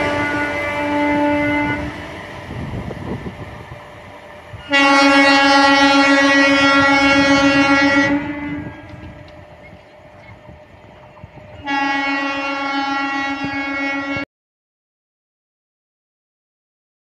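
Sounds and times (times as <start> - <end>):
train horn blast: 0.0 - 2.4, 4.5 - 9.4, 11.5 - 14.3
train rumble: 0.0 - 14.2.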